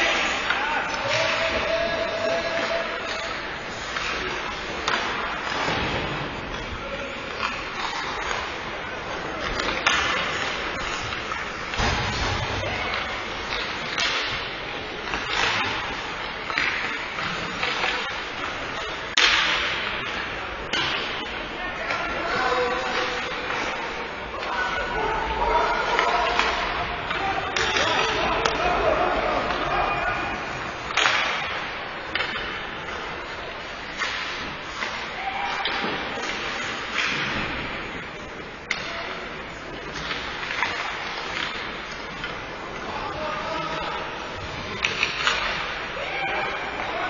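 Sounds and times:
arena echo: 0:00.0 - 0:47.0
hockey sticks clacking: 0:00.0 - 0:47.0.

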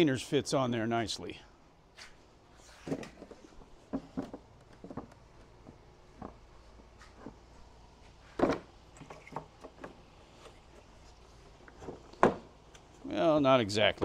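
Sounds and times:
wood scraps clicking and rattling: 0:02.9 - 0:06.4.

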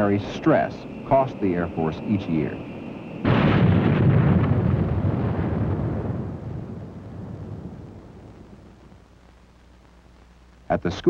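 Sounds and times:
jet aircraft roar: 0:00.0 - 0:08.8.

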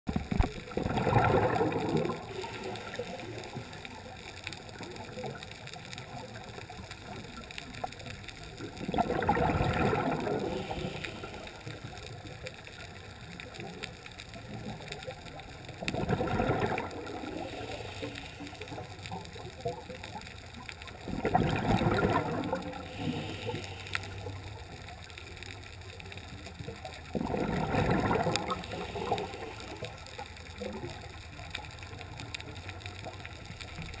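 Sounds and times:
regulator exhaust bubbles: 0:00.2 - 0:03.8, 0:21.0 - 0:23.3, 0:27.1 - 0:29.3
steady low hiss: 0:01.7 - 0:09.0, 0:09.9 - 0:15.9, 0:16.9 - 0:27.2, 0:28.0 - 0:34.0.

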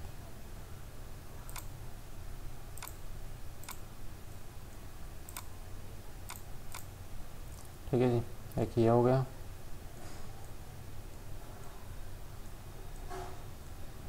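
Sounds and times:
low steady hum: 0:00.0 - 0:14.0
computer mouse clicking: 0:01.5 - 0:01.7, 0:02.8 - 0:03.0, 0:03.6 - 0:03.8, 0:05.3 - 0:05.5, 0:06.2 - 0:06.9.

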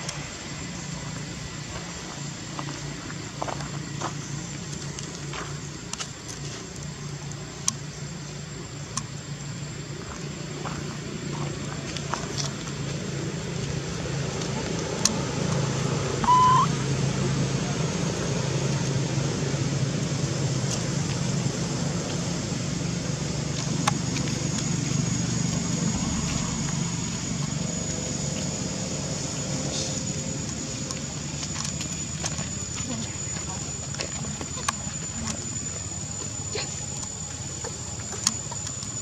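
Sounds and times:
motor hum: 0:00.0 - 0:39.0
short high squeak: 0:16.2 - 0:16.7
thin high whine: 0:16.2 - 0:16.9, 0:24.3 - 0:32.6.

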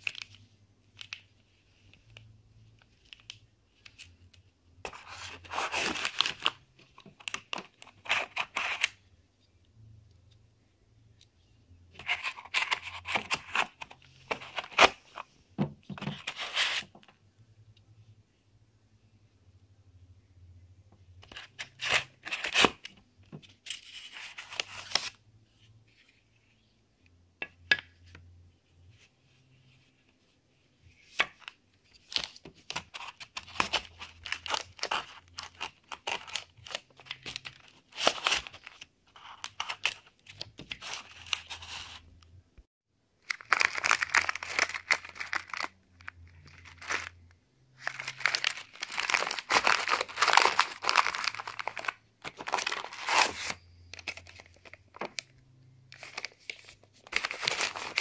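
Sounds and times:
plastic bags crinkling: 0:43.3 - 0:47.2, 0:47.8 - 0:55.3.

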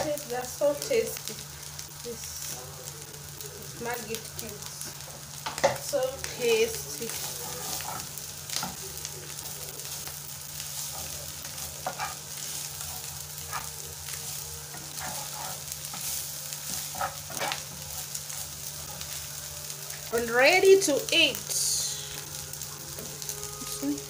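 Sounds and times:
fish sizzling in oil: 0:00.0 - 0:24.0
metal spoon scraping a pan: 0:07.0 - 0:08.7, 0:10.7 - 0:19.1.

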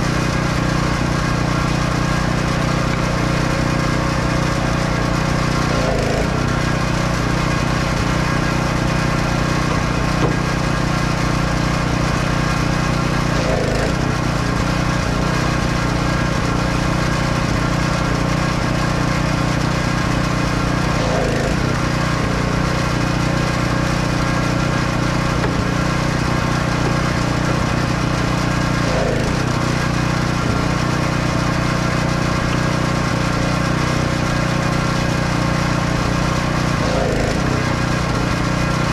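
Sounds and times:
engine running steadily: 0:00.0 - 0:38.9.

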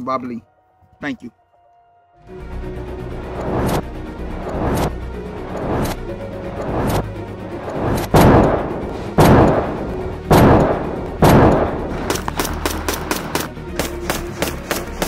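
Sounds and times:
quieter sharp cracks: 0:07.8 - 0:15.0
rifle shots echoing: 0:08.2 - 0:15.0.

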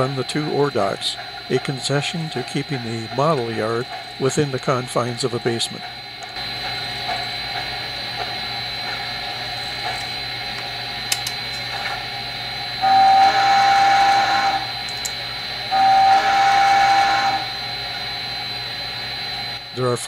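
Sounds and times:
steady background hum: 0:00.0 - 0:20.0
model steam whistle blasts: 0:12.8 - 0:14.8, 0:15.6 - 0:18.6.

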